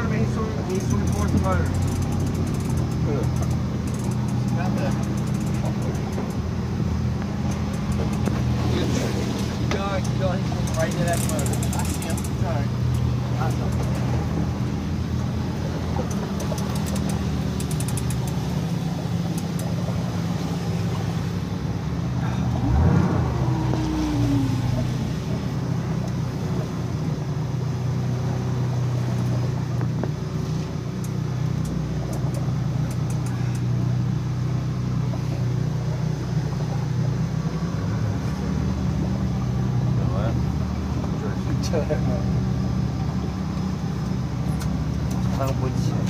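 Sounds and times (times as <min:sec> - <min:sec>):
boat engine idling: 0:00.0 - 0:46.0
fine clicking: 0:00.7 - 0:06.4, 0:07.2 - 0:08.5, 0:09.7 - 0:14.2, 0:16.0 - 0:18.6, 0:31.0 - 0:33.7.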